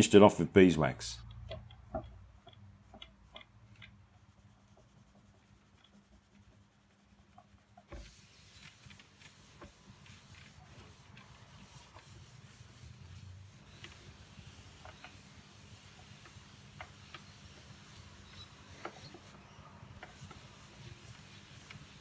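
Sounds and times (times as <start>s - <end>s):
faint steady hiss: 0.0s - 22.0s
cloth rubbing on wood: 4.2s - 22.0s.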